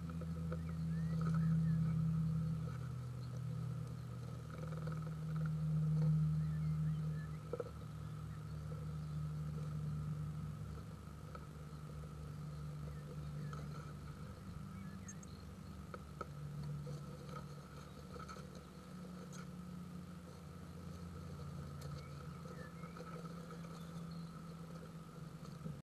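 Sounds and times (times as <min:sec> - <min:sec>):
faint ticks: 0:00.0 - 0:25.8
steady low hum: 0:00.0 - 0:25.8
faint higher tone: 0:14.3 - 0:15.7.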